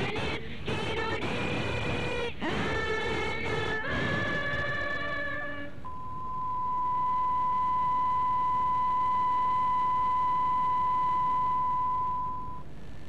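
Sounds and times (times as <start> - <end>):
steady test tone: 5.8 - 13.0.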